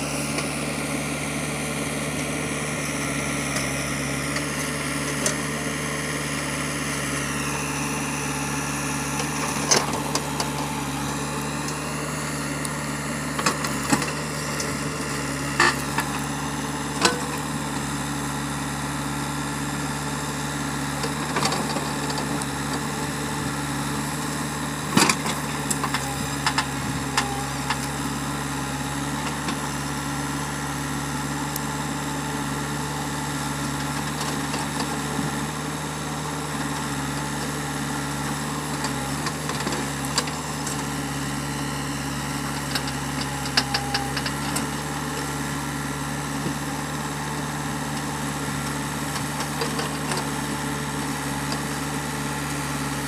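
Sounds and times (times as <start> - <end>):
diesel engine running: 0.0 - 53.0.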